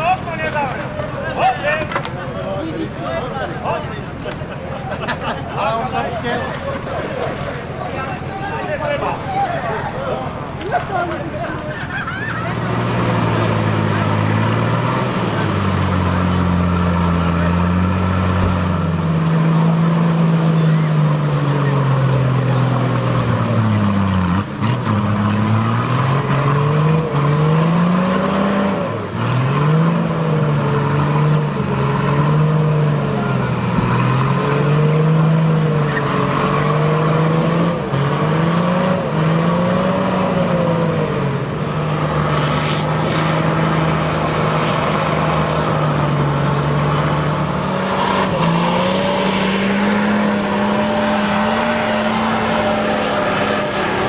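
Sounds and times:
off-road vehicle engine revving: 0:00.0 - 0:54.0.

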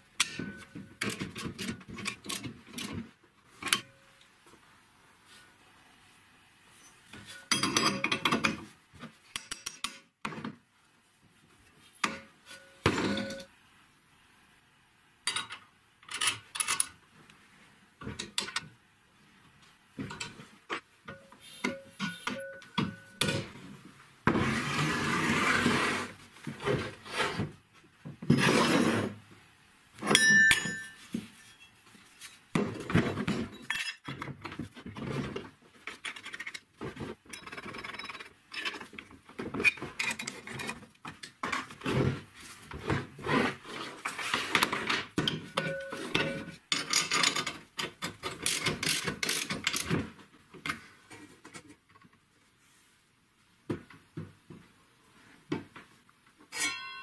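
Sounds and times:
steel parts clinking and knocking: 0:07.2 - 0:08.6, 0:09.3 - 0:10.1, 0:15.3 - 0:17.0, 0:30.0 - 0:31.6, 0:33.4 - 0:34.3, 0:37.3 - 0:39.0, 0:44.6 - 0:50.0, 0:56.5 - 0:57.0
metal sliding and rubbing: 0:24.3 - 0:27.5, 0:28.3 - 0:29.2.

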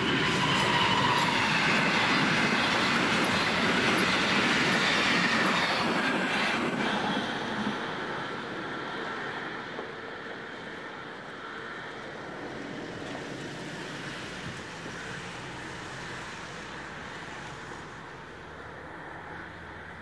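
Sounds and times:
train rushing rumble: 0:00.0 - 0:20.0.

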